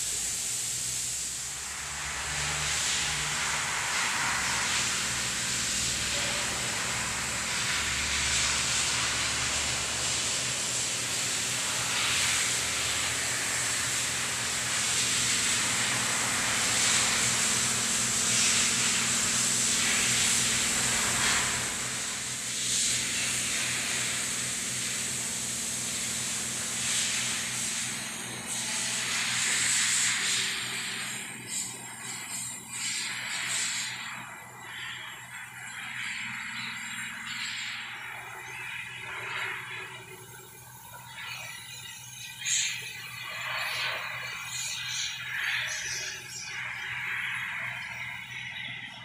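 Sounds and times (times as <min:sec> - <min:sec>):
steady hiss: 0:00.0 - 0:48.5
low mechanical hum: 0:00.0 - 0:49.0.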